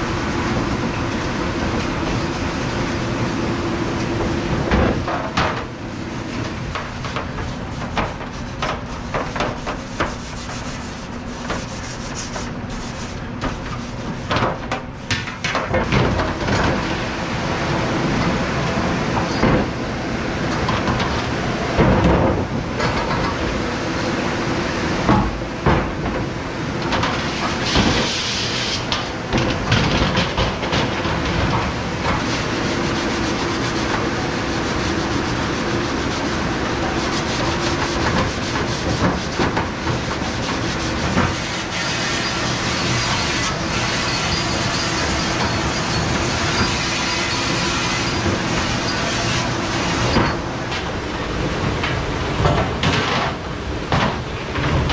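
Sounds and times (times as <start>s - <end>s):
pans and racks clanking: 26.8s - 32.8s, 36.6s - 51.0s
metal scrubber rasping on pans: 36.9s - 50.4s.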